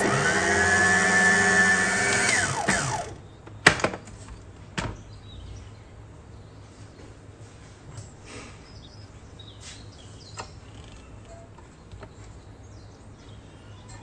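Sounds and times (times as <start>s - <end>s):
mixer head clicks: 0.0s - 3.2s
stand mixer motor whining: 0.0s - 3.2s.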